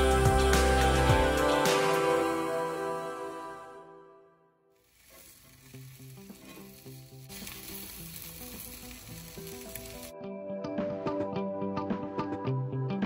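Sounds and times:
sausages sizzling on a griddle: 4.8 - 10.1.

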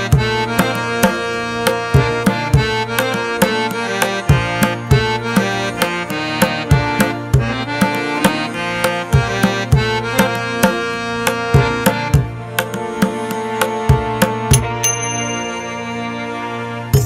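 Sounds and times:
hand drum rhythm: 0.0 - 15.4
sustained melodic tones: 14.4 - 17.0.

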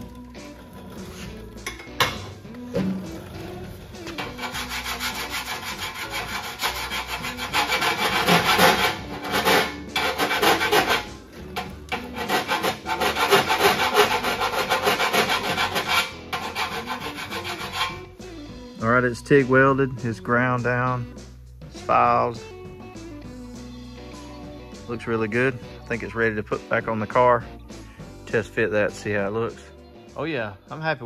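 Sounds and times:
file rasping on sheet steel: 4.2 - 18.1.

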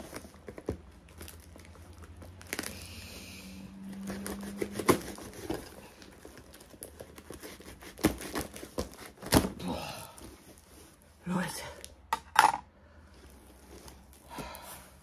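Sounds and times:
paper crinkling and tearing: 0.0 - 3.2, 4.0 - 9.7
knife cutting paper package: 3.9 - 9.7.

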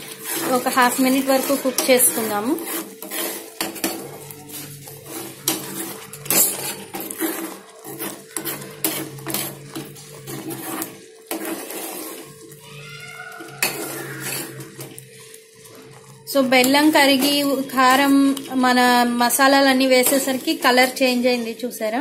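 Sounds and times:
ladle scraping steel pan: 0.0 - 12.6, 13.4 - 21.7.

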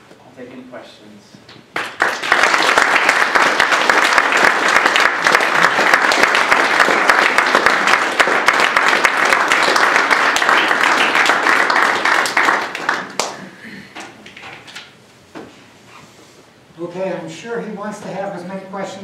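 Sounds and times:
audience applauding: 1.8 - 13.6.

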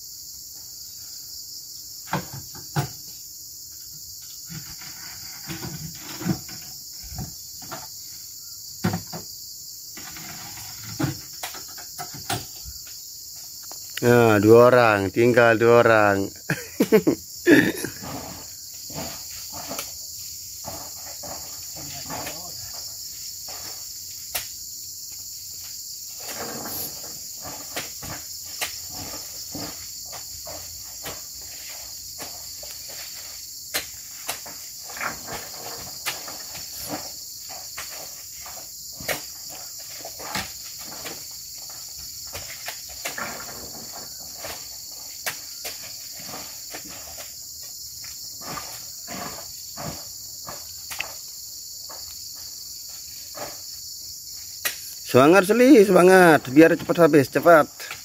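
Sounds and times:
insects droning: 0.0 - 58.0
fruit bunches thudding onto lorry: 8.8 - 9.3, 32.2 - 47.3.

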